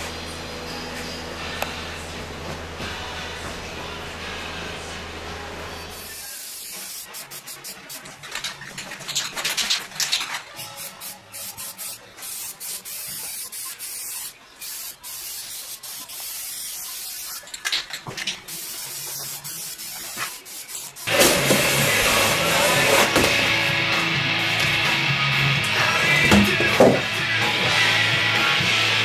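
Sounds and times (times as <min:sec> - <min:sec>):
spray can hissing: 0:05.9 - 0:08.4, 0:09.1 - 0:23.0.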